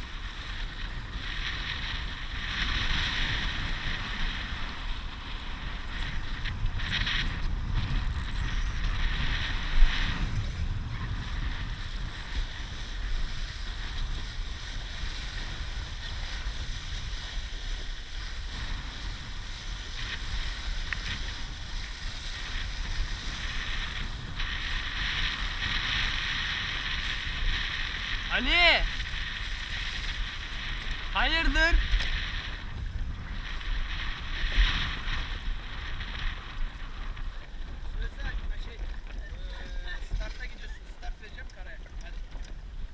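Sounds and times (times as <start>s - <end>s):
water splashing along hull: 0.0s - 28.3s, 28.9s - 31.1s
wind buffeting microphone: 0.0s - 42.9s.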